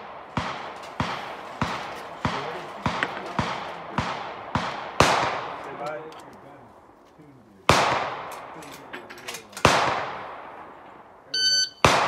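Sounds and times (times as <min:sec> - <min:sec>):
gunshots with short echo: 0:11.7 - 0:12.0.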